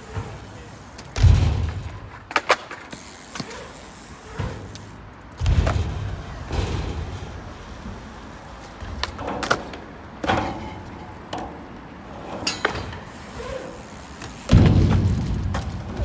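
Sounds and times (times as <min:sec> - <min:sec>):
bike clacking on ramp: 0:00.0 - 0:08.0, 0:08.6 - 0:16.0
bike landing thud: 0:00.1 - 0:04.8, 0:05.4 - 0:07.5, 0:12.4 - 0:16.0.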